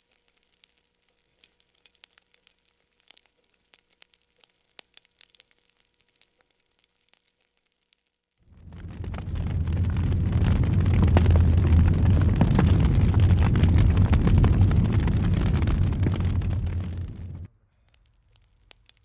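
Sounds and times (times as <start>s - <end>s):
steady low rumble: 8.5s - 17.5s
campfire crackling: 8.5s - 19.0s.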